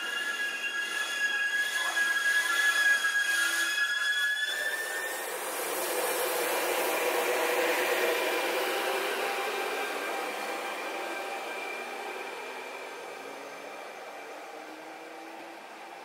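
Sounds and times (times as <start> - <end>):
electric locomotive rushing noise: 4.5 - 16.0.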